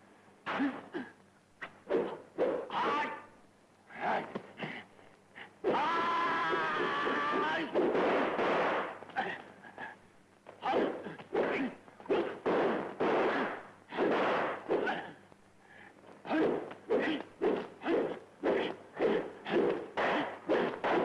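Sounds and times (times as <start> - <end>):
punch and swish sound effects: 10.7 - 15.1, 16.3 - 21.0.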